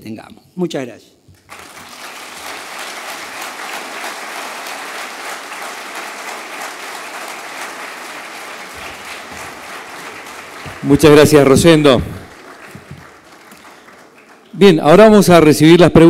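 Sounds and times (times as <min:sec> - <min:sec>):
large audience applauding: 0:01.4 - 0:15.8.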